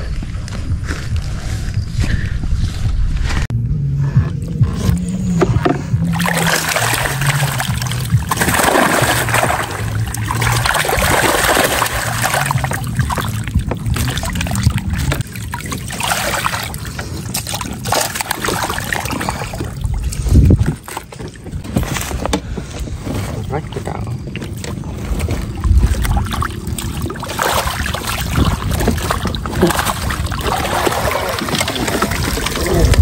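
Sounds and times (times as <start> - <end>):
water splashing and sloshing: 4.4 - 33.0
fish thrashing in water: 5.4 - 21.8, 23.4 - 33.0
water streaming through mesh: 6.0 - 21.0, 25.4 - 33.0.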